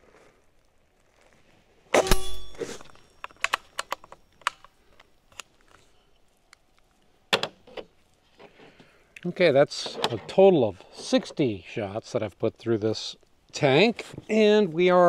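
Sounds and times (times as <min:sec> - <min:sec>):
bullet hitting steel target: 0:02.0 - 0:03.2.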